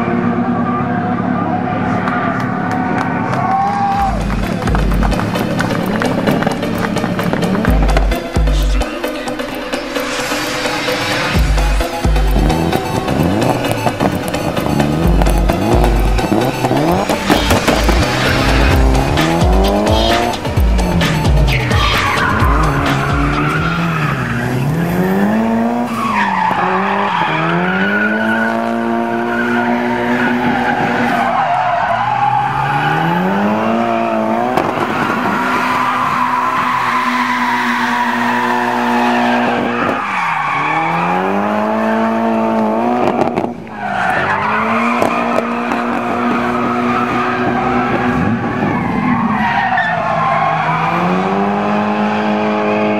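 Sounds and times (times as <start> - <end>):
car engine revving hard: 10.8 - 31.2, 32.0 - 49.4, 50.0 - 52.9
tyre squeal: 21.1 - 25.3, 29.1 - 42.3.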